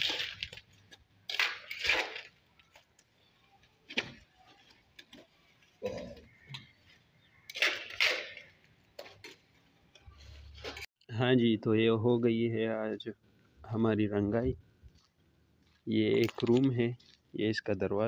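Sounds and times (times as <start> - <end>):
bricks and mortar scraping and knocking: 16.0 - 17.2.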